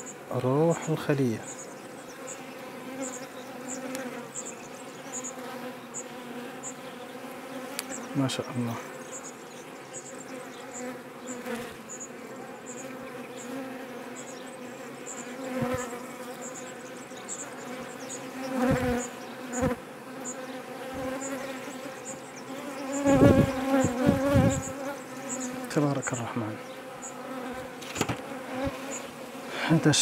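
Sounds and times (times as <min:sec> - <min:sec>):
honeybees buzzing: 0:00.0 - 0:30.0
low thumps on hive: 0:10.0 - 0:30.0.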